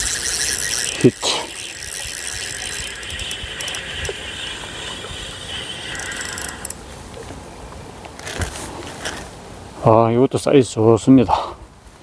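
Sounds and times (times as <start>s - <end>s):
spinning reel whirring rattle: 0.0s - 6.8s.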